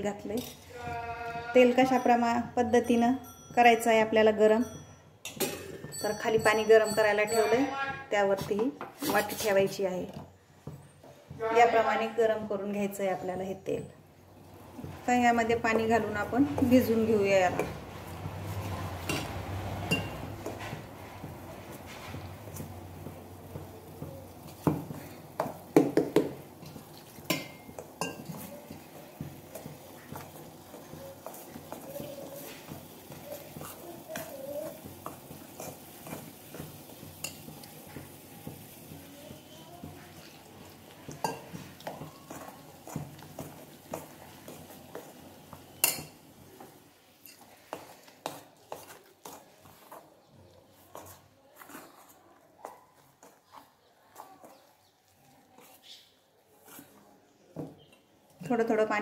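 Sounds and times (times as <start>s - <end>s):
utensil stirring flour in metal bowl: 8.2s - 9.8s, 14.4s - 57.1s
utensil clinking against steel bowl: 26.6s - 37.7s, 41.1s - 45.1s
spoon scraping metal bowl: 47.2s - 50.1s.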